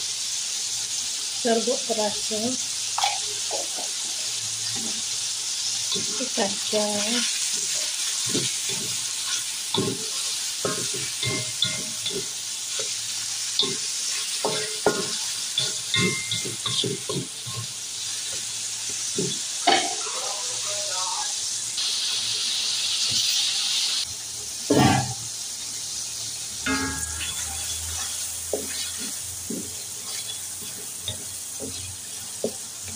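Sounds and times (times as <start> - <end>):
chicken sizzling in oil: 0.0 - 32.9
spatula scraping a wok: 3.0 - 18.4, 26.7 - 32.9.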